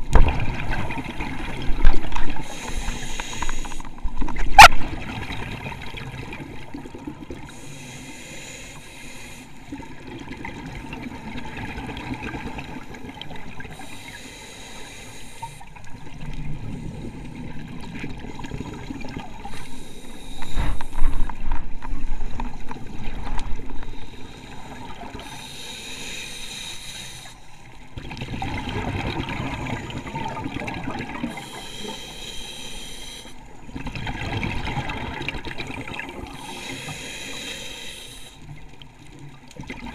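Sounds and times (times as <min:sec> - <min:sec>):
diver inhaling through regulator: 0:02.4 - 0:03.9, 0:07.5 - 0:09.6, 0:13.7 - 0:15.6, 0:19.4 - 0:21.2, 0:23.8 - 0:27.4, 0:31.2 - 0:33.4, 0:36.3 - 0:38.4
exhaled bubbles burbling: 0:28.0 - 0:31.4, 0:33.7 - 0:36.4.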